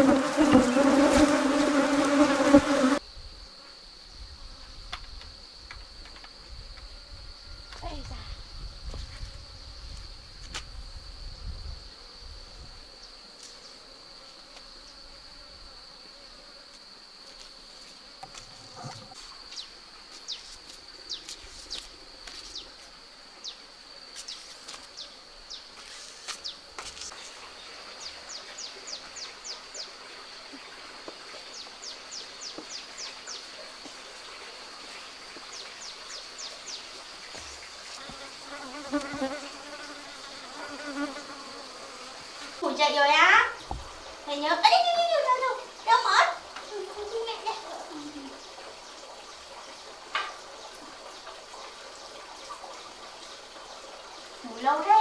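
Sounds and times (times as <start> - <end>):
honey bees buzzing: 0.0 - 3.1, 12.8 - 19.2, 36.6 - 48.2
quick insect chirps: 0.0 - 55.0.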